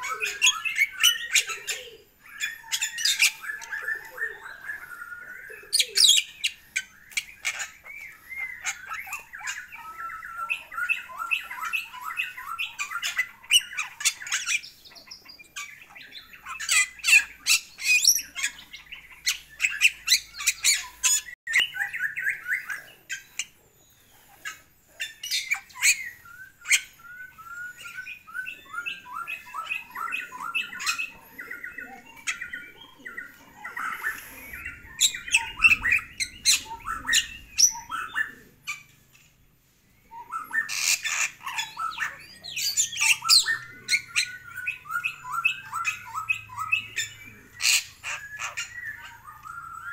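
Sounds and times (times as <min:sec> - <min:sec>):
myna squawking and chattering: 0:28.7 - 0:38.9.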